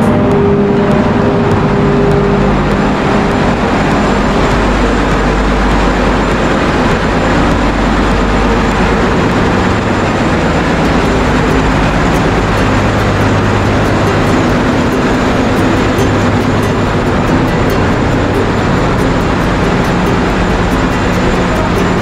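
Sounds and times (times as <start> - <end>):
diesel machinery droning: 0.0 - 22.0
low hums: 0.0 - 22.0.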